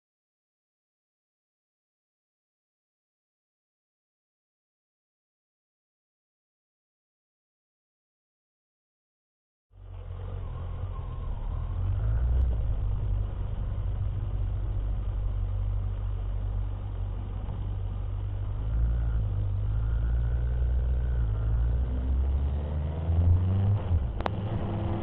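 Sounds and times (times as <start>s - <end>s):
motorcycle engine rumbling: 9.7s - 25.0s.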